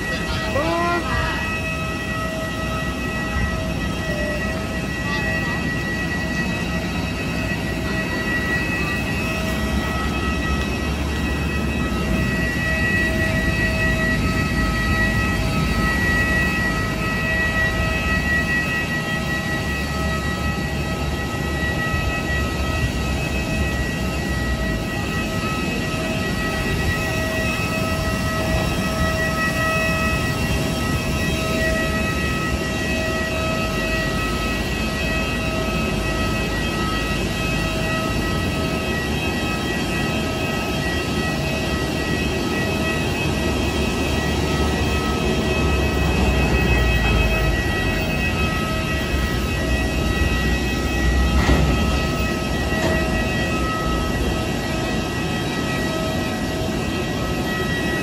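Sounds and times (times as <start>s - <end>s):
jet turbine whine: 0.0s - 58.0s.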